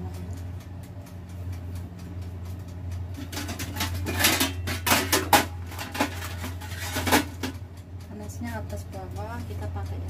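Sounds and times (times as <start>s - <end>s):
steady low hum: 0.0s - 10.0s
oven rack clanking: 3.1s - 8.6s.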